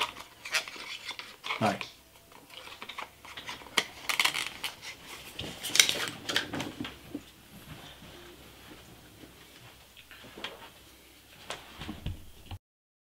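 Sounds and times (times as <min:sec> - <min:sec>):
paper box rustling: 0:02.4 - 0:09.6.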